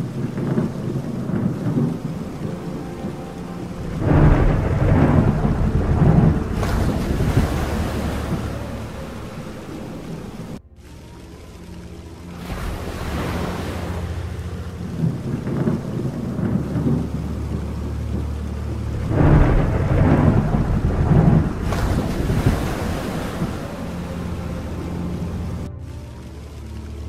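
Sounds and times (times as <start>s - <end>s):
rolling thunder: 0.0s - 11.3s, 12.2s - 26.9s
steady rain: 0.0s - 27.0s.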